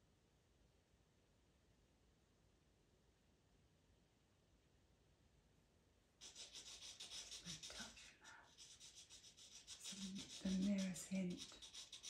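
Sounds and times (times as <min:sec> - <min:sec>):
pastel pencil scratching paper: 0:06.2 - 0:12.0.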